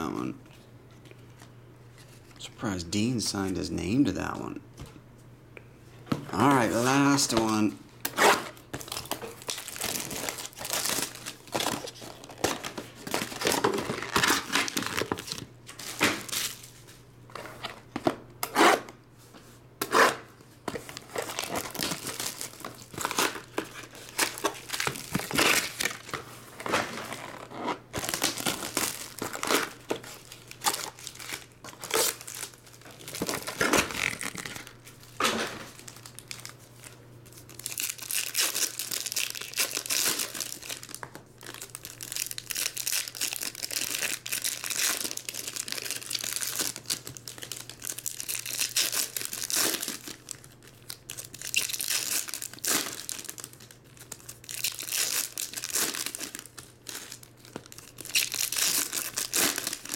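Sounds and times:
plastic wrap crinkling and tearing: 0:06.4 - 0:16.9, 0:20.8 - 0:59.9
foil packs tearing: 0:08.1 - 0:16.7, 0:20.9 - 0:59.9.

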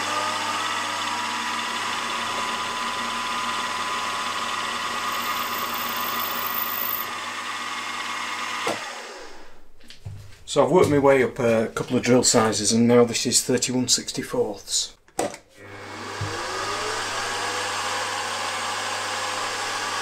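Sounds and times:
milling machine spindle whine: 0:00.0 - 0:07.2
drill cutting metal hiss: 0:04.7 - 0:07.1.

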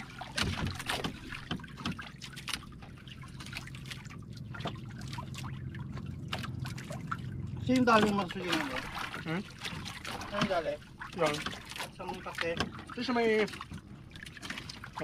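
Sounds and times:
water lapping around boat hull: 0:00.0 - 0:15.0.

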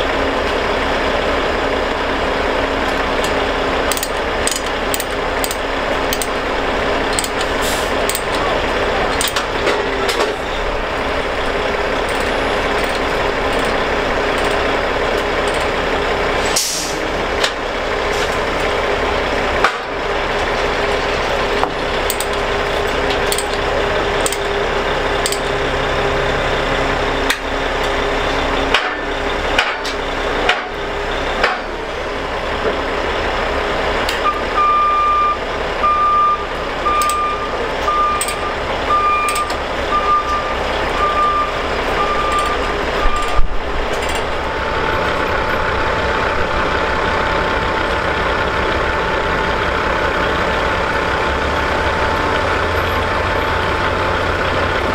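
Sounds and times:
heavy truck engine running: 0:00.0 - 0:54.9
air hiss: 0:16.4 - 0:17.0
reversing alarm beeping: 0:34.2 - 0:54.6.

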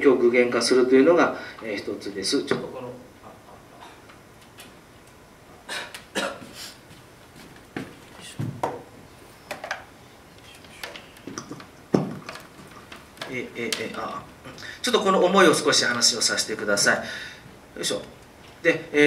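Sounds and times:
microphone handling knocks and rustles: 0:06.4 - 0:09.0, 0:11.2 - 0:13.3.

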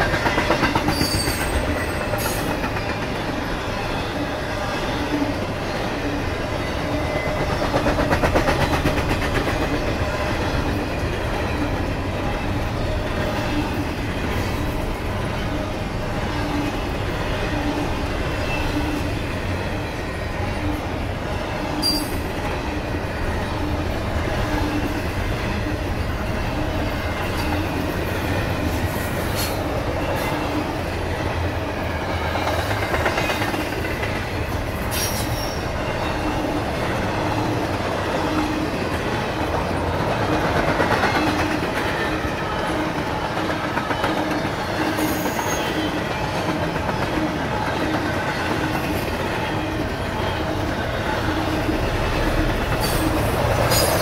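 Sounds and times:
train wheels rumbling on rail: 0:00.0 - 0:54.0
high wheel squeals: 0:00.9 - 0:02.6, 0:21.8 - 0:22.2.

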